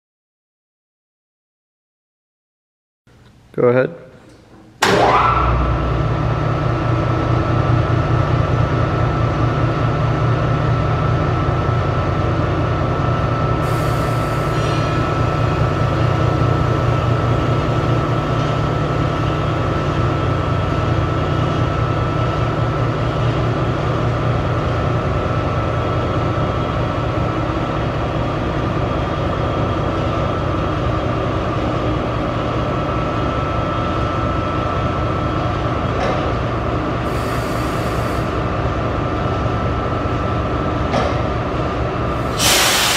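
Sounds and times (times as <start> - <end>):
mixer motor humming and whining: 4.8 - 28.3
brief hiss: 42.3 - 42.9.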